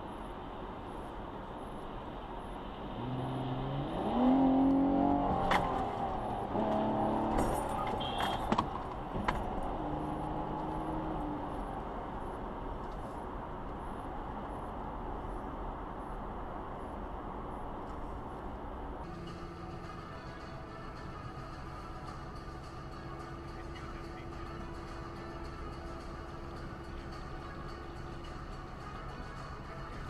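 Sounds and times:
road noise hiss: 0:00.0 - 0:30.0
pitched engine drone: 0:19.1 - 0:30.0.

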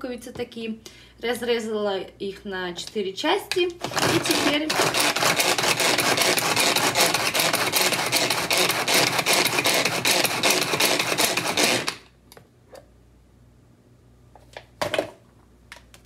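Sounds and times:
food chopper blades clattering: 0:03.8 - 0:12.1.

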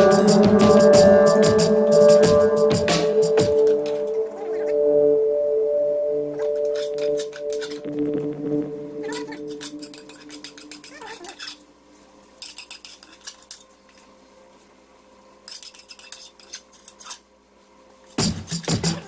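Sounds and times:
fork scraping on ceramic plate: 0:06.5 - 0:07.9, 0:09.1 - 0:11.6, 0:12.4 - 0:14.0, 0:15.4 - 0:17.2.

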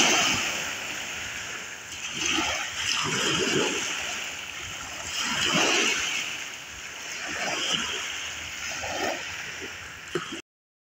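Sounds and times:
small waves lapping at shore: 0:00.0 - 0:10.4.

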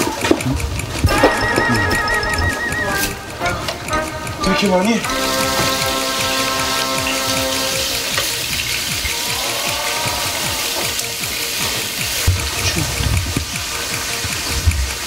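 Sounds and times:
background music: 0:00.0 - 0:15.0
pork sizzling in a frying pan: 0:05.1 - 0:15.0.

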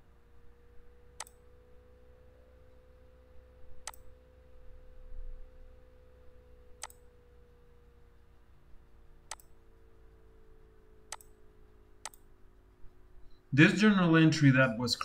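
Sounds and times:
faint steady hum: 0:00.0 - 0:15.0
computer mouse clicking: 0:01.2 - 0:01.4, 0:03.8 - 0:04.1, 0:06.8 - 0:07.1, 0:09.3 - 0:09.6, 0:11.1 - 0:11.4, 0:12.0 - 0:12.3.

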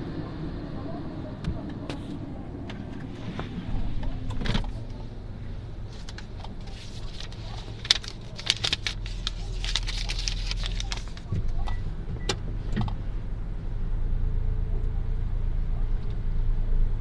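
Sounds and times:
car engine humming: 0:00.0 - 0:17.0
sharp clicks and rattles: 0:05.9 - 0:11.8.

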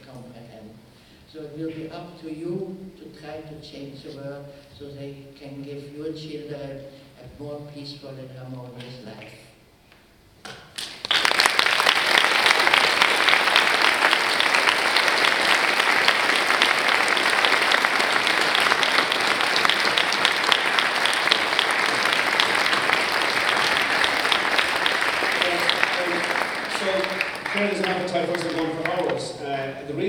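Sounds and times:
audience applauding: 0:10.8 - 0:29.5.

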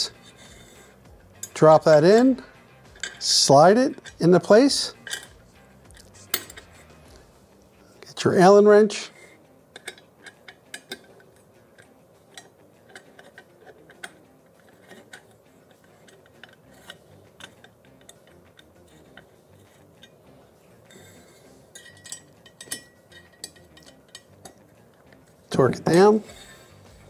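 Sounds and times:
allen wrench metallic clicks: 0:09.7 - 0:19.3.

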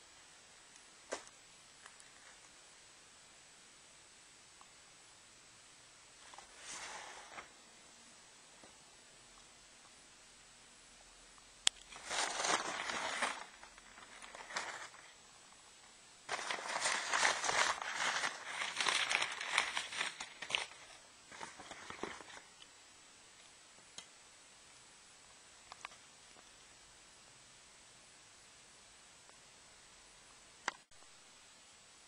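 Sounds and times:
cloth rustling and crinkling: 0:06.2 - 0:07.6, 0:11.8 - 0:15.2, 0:16.3 - 0:22.5.

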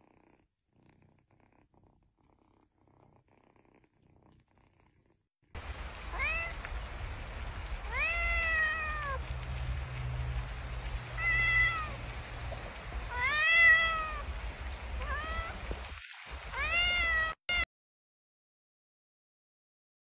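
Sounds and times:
cat meowing: 0:06.1 - 0:06.6, 0:07.9 - 0:09.2, 0:11.2 - 0:12.0, 0:13.1 - 0:14.3, 0:15.0 - 0:15.7, 0:16.5 - 0:17.7.

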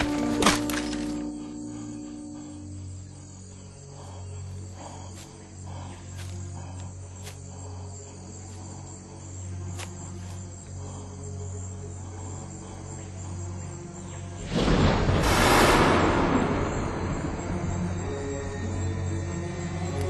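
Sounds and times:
low steady hum: 0:00.0 - 0:14.0
crickets chirring: 0:00.0 - 0:20.0.

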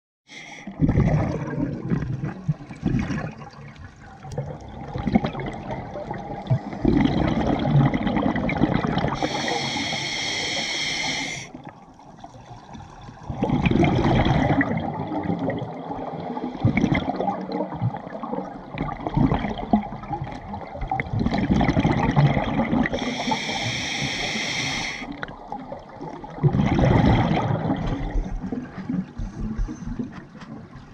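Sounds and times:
regulator inhalation hiss: 0:00.3 - 0:00.7, 0:09.2 - 0:11.6, 0:23.0 - 0:25.1
diver exhaling bubbles underwater: 0:00.4 - 0:03.6, 0:04.4 - 0:11.7, 0:13.2 - 0:30.1.

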